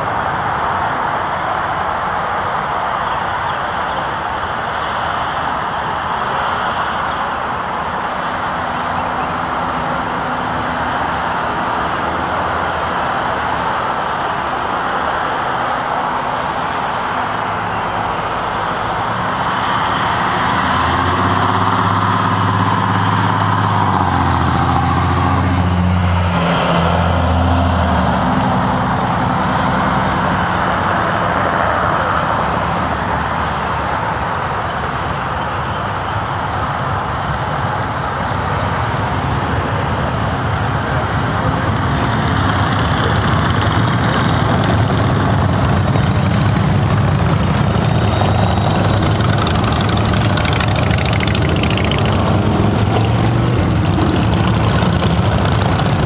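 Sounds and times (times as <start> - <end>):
heavy engine passing: 0.0 - 56.0
vehicles passing on road: 0.0 - 56.0.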